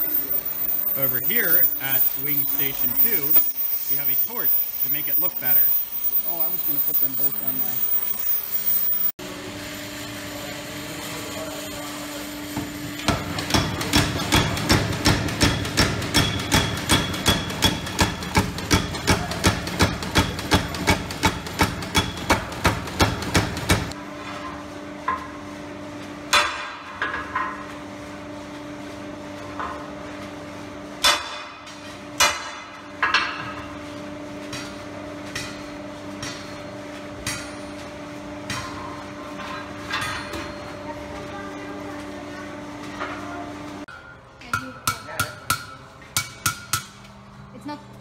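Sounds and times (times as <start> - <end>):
steady hum: 0.0 - 13.2
hand hammer striking hot steel: 13.1 - 23.8, 44.5 - 47.0
power hammer pounding steel: 13.1 - 23.9.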